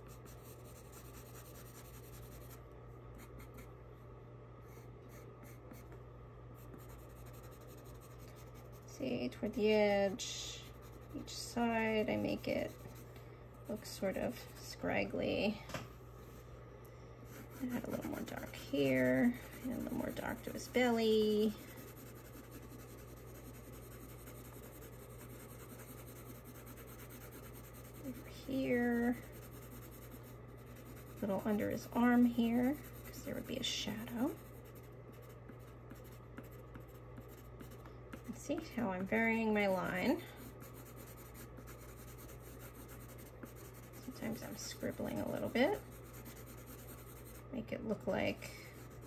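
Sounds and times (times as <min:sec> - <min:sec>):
colored pencil scratching on paper: 0:00.0 - 0:02.6, 0:04.7 - 0:06.0, 0:06.6 - 0:13.0, 0:17.3 - 0:49.0.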